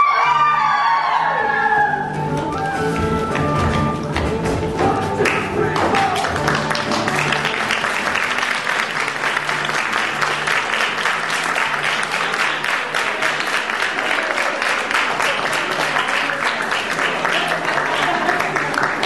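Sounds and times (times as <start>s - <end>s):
music playing: 0.0s - 19.0s
audience applauding: 5.2s - 19.0s.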